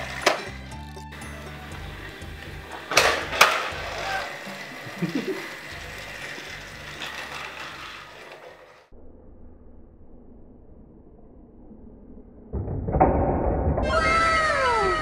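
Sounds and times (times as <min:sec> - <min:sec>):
toy train motor whirring: 0:00.0 - 0:08.9.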